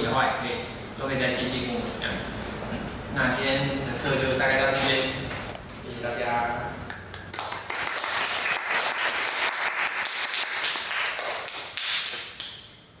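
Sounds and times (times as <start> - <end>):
audience applauding: 7.2 - 12.3.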